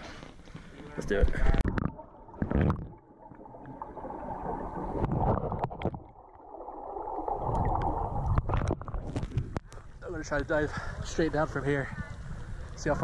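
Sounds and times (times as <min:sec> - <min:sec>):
muffled water sloshing: 0:00.0 - 0:13.0
water splash: 0:01.4 - 0:09.6.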